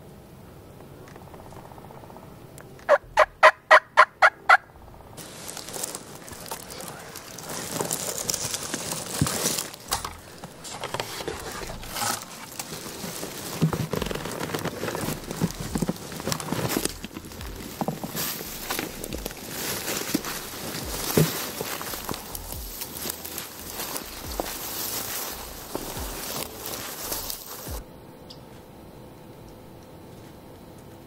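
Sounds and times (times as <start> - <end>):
wild turkey yelping: 2.9 - 4.7
footsteps crunching dry leaves: 5.2 - 27.8.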